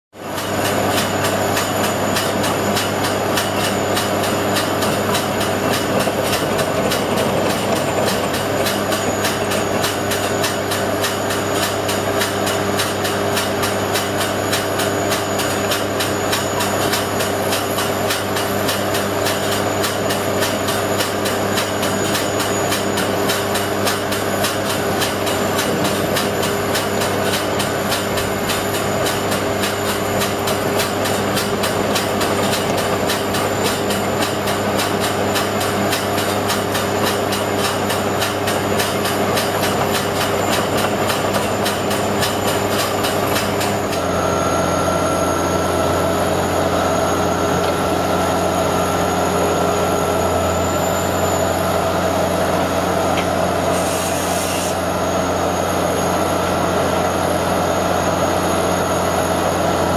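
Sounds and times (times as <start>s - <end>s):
drilling rig machine drone: 0.2s - 59.9s.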